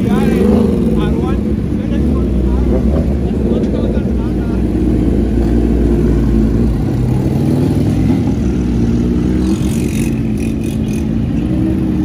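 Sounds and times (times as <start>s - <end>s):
motorcycles revving: 0.0s - 12.0s.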